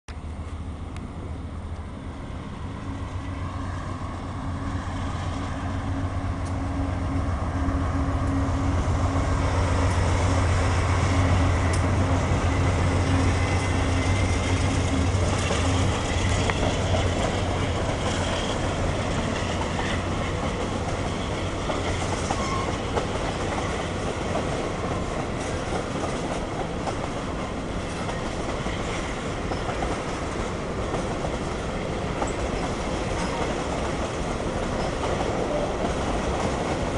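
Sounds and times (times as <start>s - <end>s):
diesel locomotive engine drone: 0.1s - 36.9s
train cars rumbling on rails: 0.1s - 36.9s.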